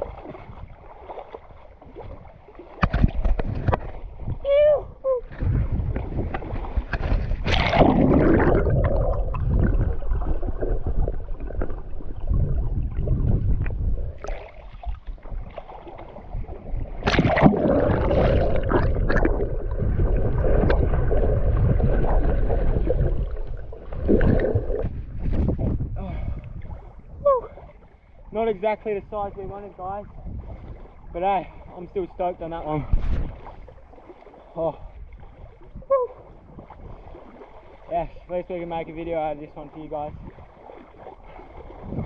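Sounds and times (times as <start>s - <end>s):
water sloshing and splashing: 0.0s - 42.0s
low rumble: 3.7s - 27.6s.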